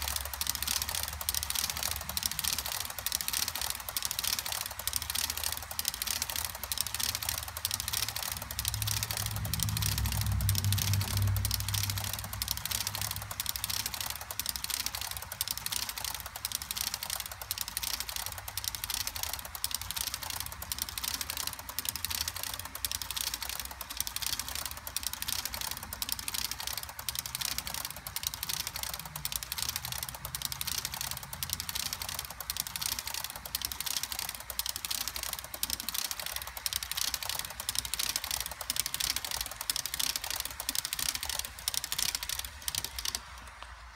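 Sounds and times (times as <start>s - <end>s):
model train wheels clicking: 0.0s - 43.9s.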